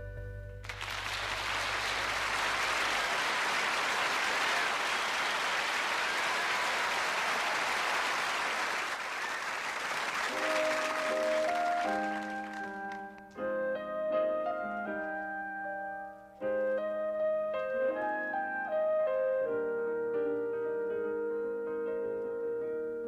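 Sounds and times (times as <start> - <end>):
piano playing sustained chords: 0.0 - 3.4, 10.2 - 23.0
audience applauding: 0.6 - 13.2.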